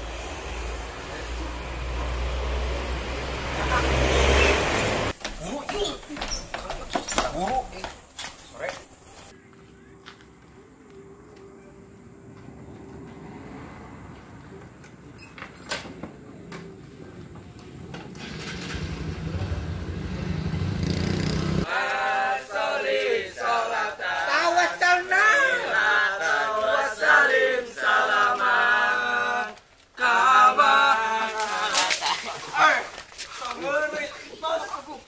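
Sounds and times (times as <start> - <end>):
low rumbling noise: 16.3 - 21.7.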